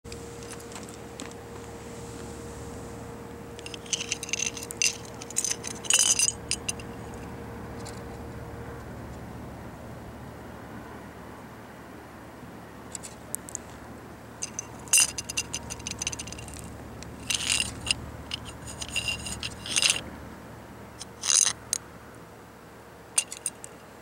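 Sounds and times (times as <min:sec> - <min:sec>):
low background noise: 0:00.1 - 0:24.0
fishing rig clicking and clinking: 0:03.6 - 0:07.0, 0:14.4 - 0:20.0, 0:23.2 - 0:23.8.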